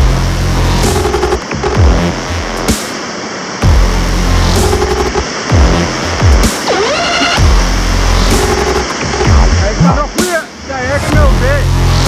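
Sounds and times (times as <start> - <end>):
bass note sliding down: 0.0 - 2.4, 3.6 - 9.6
electronic music with heavy bass: 0.0 - 12.0.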